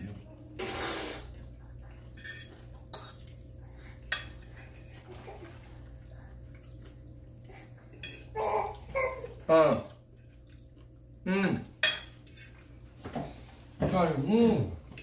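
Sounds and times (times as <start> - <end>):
low steady hum: 0.0 - 15.0
forks clinking on plates: 2.1 - 3.4, 4.0 - 4.9, 7.9 - 8.8, 11.4 - 12.7.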